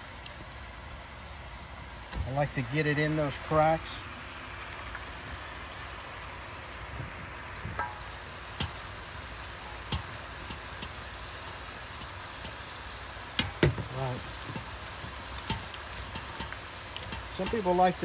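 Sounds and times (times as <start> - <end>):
oil bubbling in deep fryer: 0.0 - 18.0
sharp taps and knocks: 7.0 - 12.7, 13.3 - 17.8.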